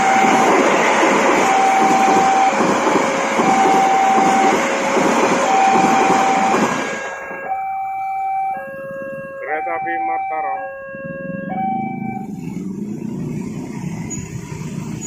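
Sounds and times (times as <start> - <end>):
level crossing alarm two tones: 0.0 - 0.7, 1.4 - 2.6, 3.4 - 4.7, 5.4 - 12.6
train wheels on rails: 0.0 - 7.3, 11.3 - 15.0.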